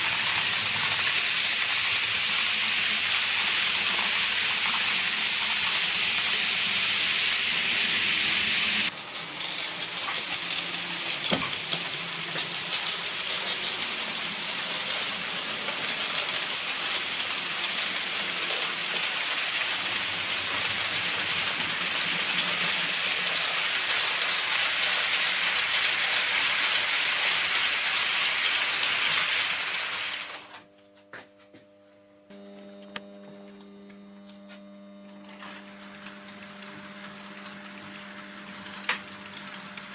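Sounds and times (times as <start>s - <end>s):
model train wheels hissing on rails: 0.0s - 30.5s.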